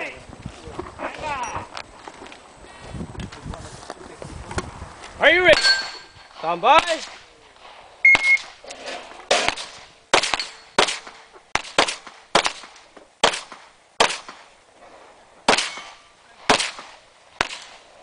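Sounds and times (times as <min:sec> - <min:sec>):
pistol shots with echo: 0:09.3 - 0:14.5, 0:15.5 - 0:17.8.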